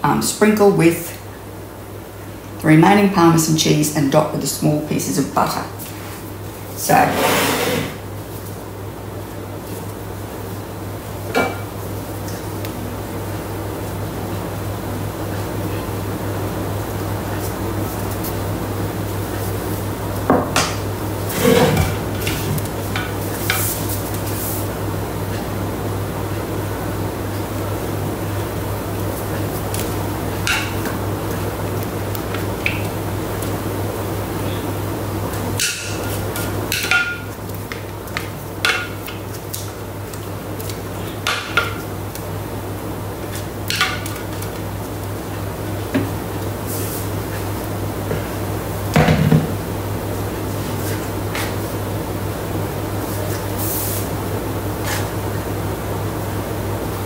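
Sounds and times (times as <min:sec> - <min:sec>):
steady low hum: 0:00.0 - 0:57.0
spatula scraping metal bowl: 0:06.9 - 0:08.0.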